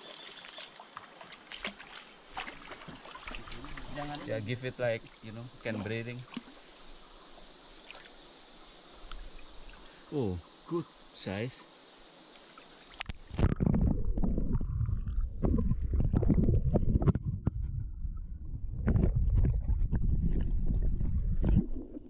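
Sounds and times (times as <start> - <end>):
insects buzzing: 0.0 - 13.4
muffled underwater rumble and sloshing: 13.1 - 22.0.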